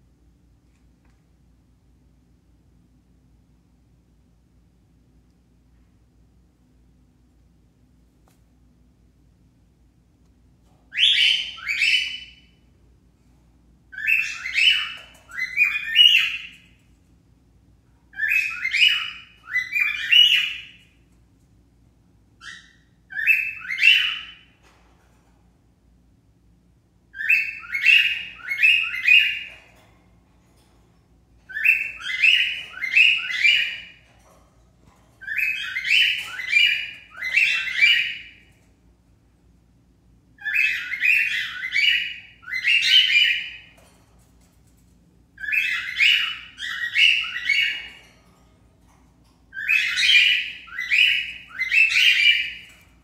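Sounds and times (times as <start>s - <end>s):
cockatiel chirping: 10.9s - 12.5s, 13.9s - 16.7s, 18.1s - 20.8s, 22.4s - 24.5s, 27.2s - 29.6s, 31.5s - 34.0s, 35.2s - 38.4s, 40.4s - 43.8s, 45.4s - 48.1s, 49.6s - 52.8s.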